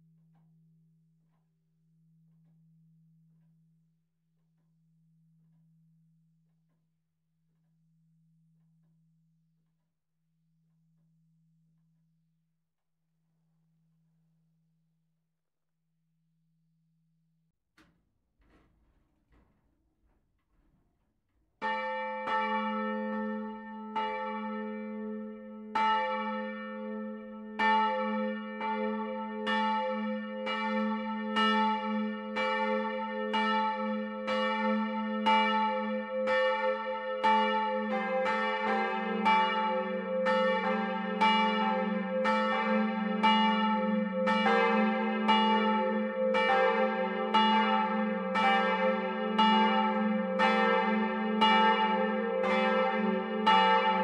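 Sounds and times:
church bells pealing: 21.6 - 54.0.

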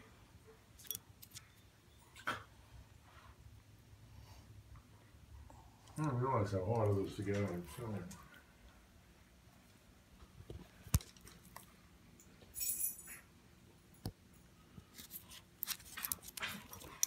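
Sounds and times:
dog collar tags jingling: 12.6 - 13.2.

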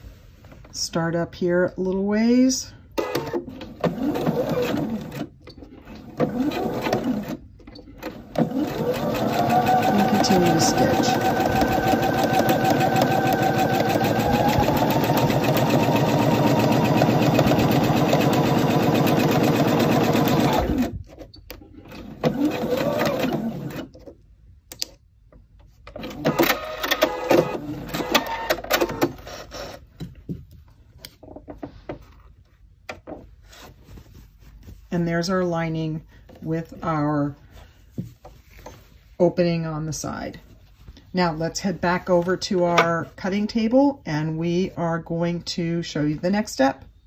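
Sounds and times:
sewing machine stitching: 3.0 - 21.0, 21.8 - 23.9
fabric rustling: 33.3 - 35.2.

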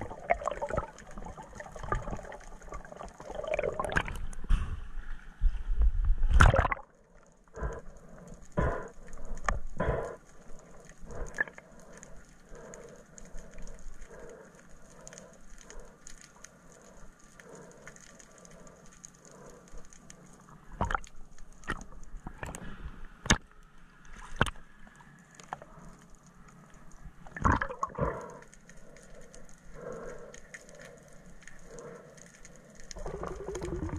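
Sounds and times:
underwater water movement: 0.0 - 33.9
underwater clicks and knocks: 20.8 - 22.6.

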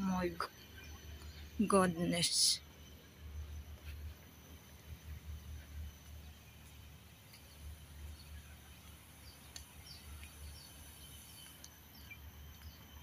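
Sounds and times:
insect hum: 0.0 - 13.0
bird chirps: 6.0 - 13.0.

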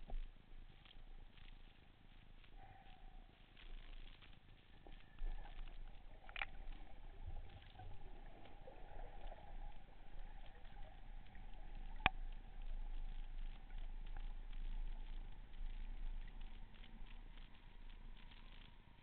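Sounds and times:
muffled underwater noise: 0.0 - 19.0
small clicks and knocks: 3.6 - 9.5, 10.4 - 18.8.

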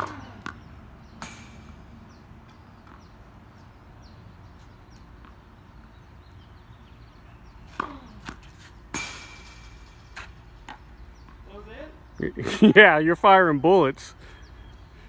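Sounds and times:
tennis balls bouncing on court: 0.0 - 11.7
tennis balls hit with racquets: 0.0 - 12.0.

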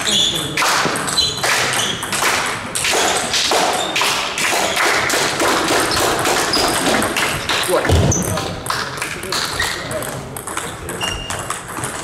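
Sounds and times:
ball bouncing on table: 5.6 - 12.0
ping pong ball clicking off rackets: 8.6 - 12.0.

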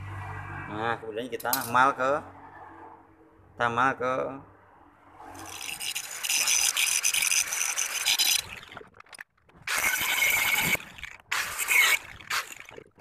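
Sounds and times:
angle grinder grinding metal: 5.4 - 8.5, 9.7 - 12.5.

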